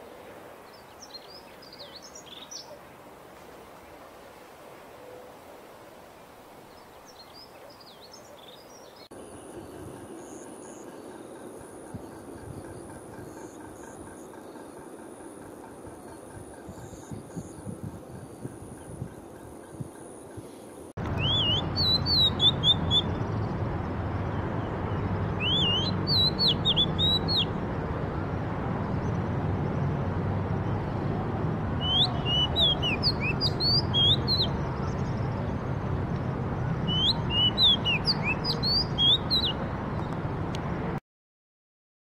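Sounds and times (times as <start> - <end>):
bird singing whistled phrases: 21.2 - 23.2, 25.4 - 27.5, 31.8 - 34.6, 36.9 - 39.6.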